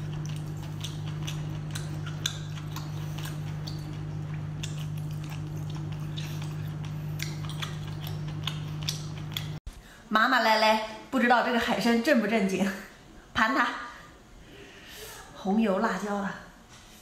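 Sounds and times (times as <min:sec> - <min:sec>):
person chewing with wet smacks: 0:00.0 - 0:09.6
steady low hum: 0:00.0 - 0:10.1.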